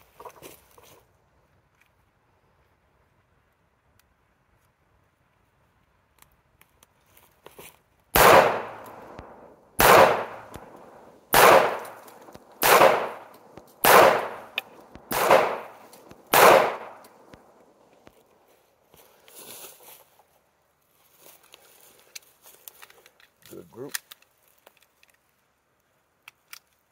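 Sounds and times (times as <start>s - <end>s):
pistol shots: 8.2s - 17.4s
gun handling clicks: 8.2s - 18.1s, 22.0s - 25.3s, 26.2s - 26.9s.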